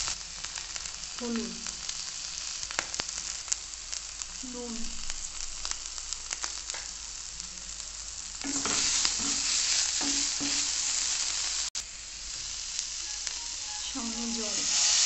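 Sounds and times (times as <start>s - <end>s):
onions and spices sizzling in oil: 0.0s - 15.0s
wooden spatula scraping a pan: 8.4s - 10.9s.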